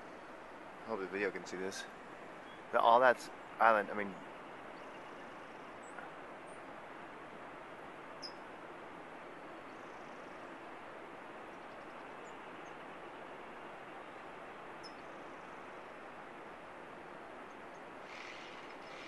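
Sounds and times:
high bird chirps: 8.2 - 8.4.

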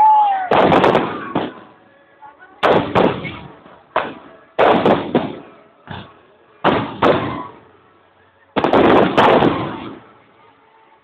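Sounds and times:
fireworks bursting: 0.0 - 1.8, 2.6 - 7.8, 8.5 - 10.2.

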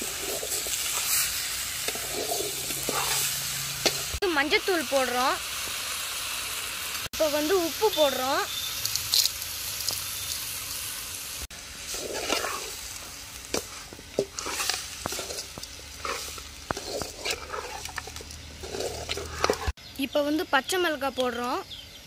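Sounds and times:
metal spoon scraping and clinking: 0.0 - 4.1, 11.9 - 12.8, 13.5 - 19.8
meat sizzling in a pot: 0.0 - 19.8.

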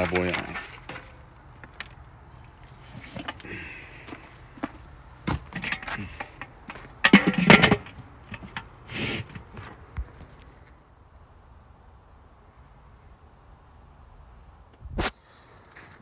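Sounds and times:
metal lid clattering onto grill: 7.0 - 8.6.

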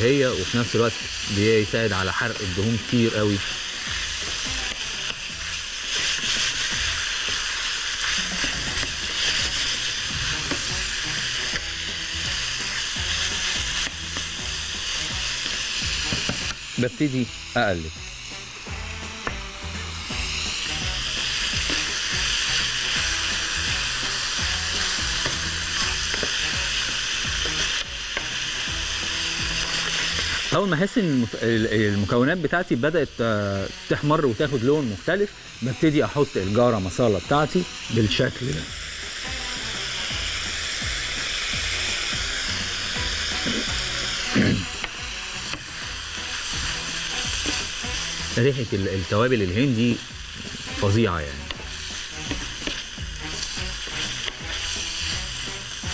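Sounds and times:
background music: 0.0 - 55.9
beef sizzling in frying pan: 0.0 - 55.9
wooden spoon knocking pan: 52.3 - 52.8.

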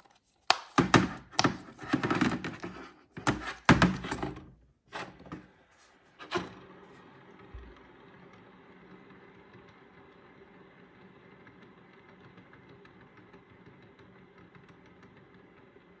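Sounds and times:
plastic fidget toy popping: 0.4 - 2.1.

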